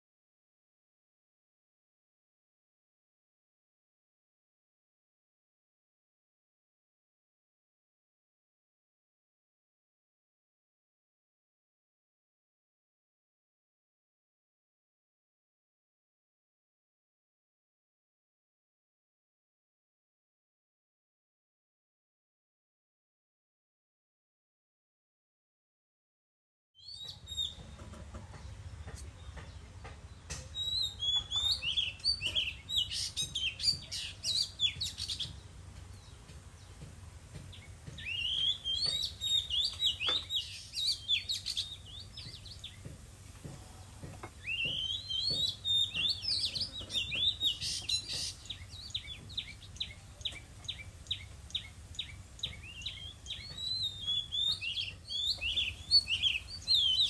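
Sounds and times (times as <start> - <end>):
bird singing whistled phrases: 38.0 - 41.8, 44.4 - 50.0, 52.5 - 57.0.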